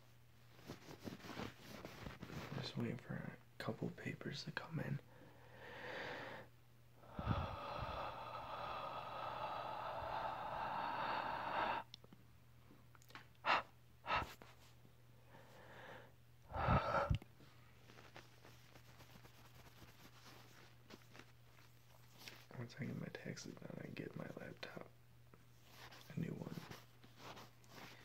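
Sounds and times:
close breathing: 5.1 - 12.0, 13.4 - 18.6
blowing air puffs: 7.1 - 11.8.

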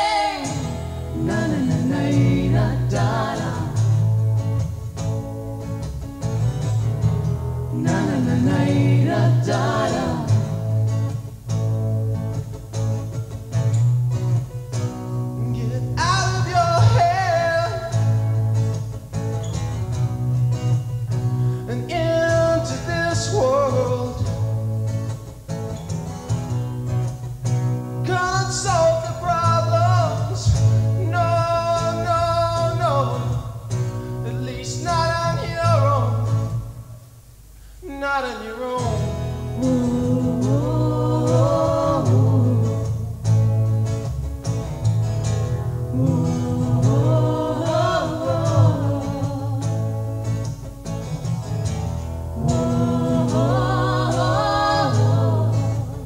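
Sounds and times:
person singing: 0.0 - 3.8, 7.7 - 10.5, 39.6 - 43.1, 45.9 - 49.8, 52.4 - 56.0
strummed acoustic guitar: 0.0 - 56.0
plucked double bass: 0.4 - 25.5, 39.0 - 56.0.

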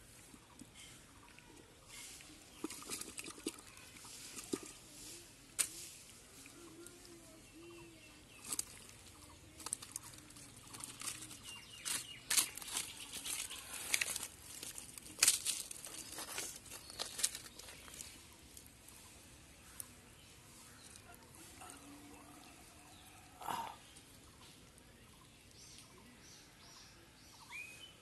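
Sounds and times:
stick scratching in dry mud: 1.8 - 23.2.

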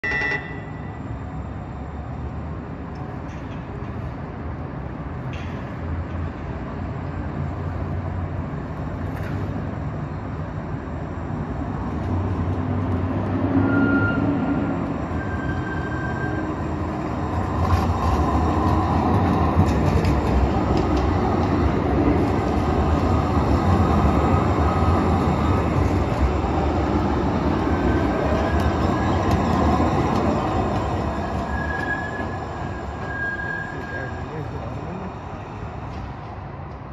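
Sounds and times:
train rumble and motor hum: 0.0 - 36.9.

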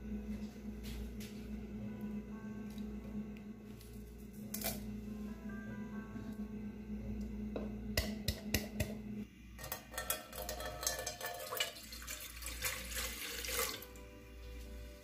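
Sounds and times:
water splashing into metal pot: 9.6 - 13.9.

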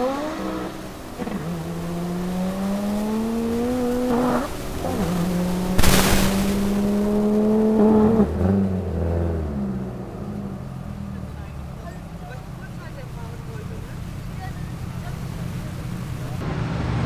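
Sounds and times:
gear change: 0.0 - 9.1
car engine accelerating: 0.0 - 17.0
loud burst of noise: 5.8 - 7.0.

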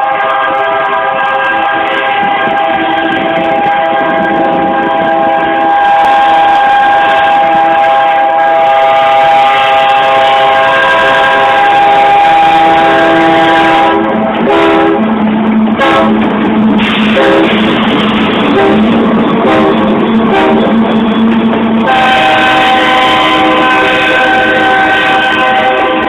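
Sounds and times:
train air horn chord: 0.0 - 15.1, 15.8 - 16.2, 16.8 - 17.6, 18.5 - 20.8, 21.8 - 26.0.

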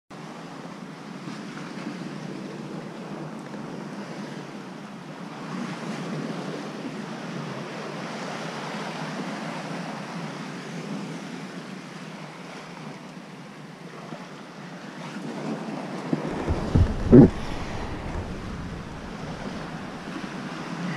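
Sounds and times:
ocean surf against rocks: 16.1 - 20.9
wind on microphone: 16.1 - 20.9
loud low thumps: 16.3 - 20.2.

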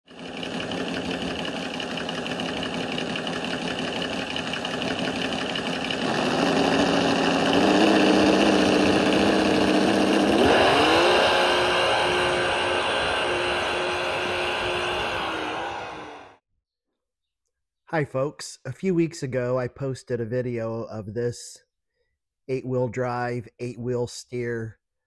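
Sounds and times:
engine running: 0.0 - 16.4.

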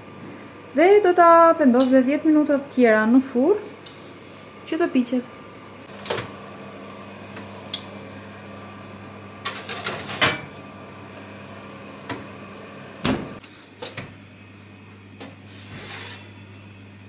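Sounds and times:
oven door shutting: 5.9 - 6.4, 9.0 - 10.6, 11.6 - 14.2.

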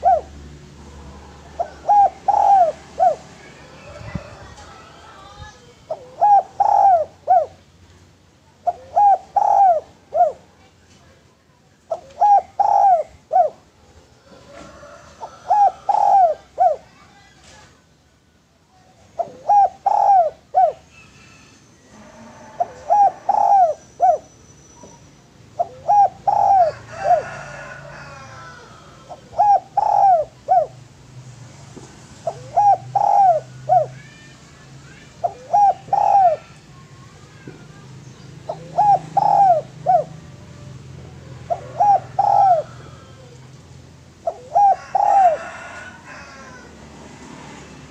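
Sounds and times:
dove cooing: 0.0 - 7.6, 8.6 - 10.6, 11.9 - 17.0, 19.1 - 24.3, 25.5 - 30.8, 32.2 - 34.1, 35.0 - 46.7
small birds chirping: 32.2 - 44.4.

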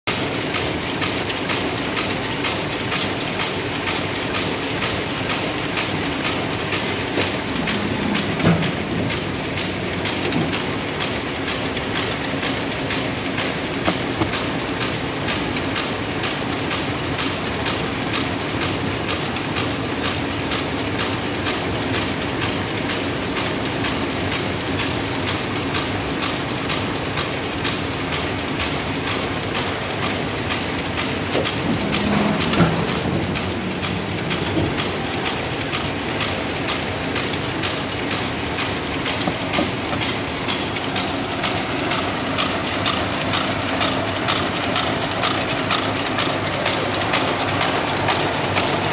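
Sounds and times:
factory machinery clattering: 0.1 - 48.9
machinery knocks: 7.1 - 10.7, 31.2 - 35.6.

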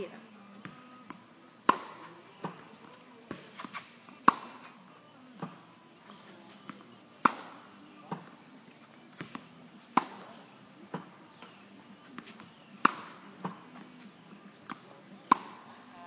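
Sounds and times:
tennis racket striking ball: 1.7 - 2.6, 3.3 - 4.7, 7.2 - 8.3, 9.2 - 11.6, 12.2 - 13.6, 14.6 - 15.6.

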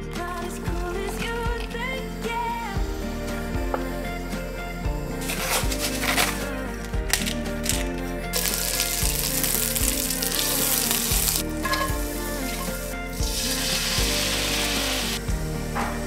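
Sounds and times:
light background music: 0.0 - 16.0
garlic sizzling in a frying pan: 8.4 - 12.8, 13.4 - 15.2.

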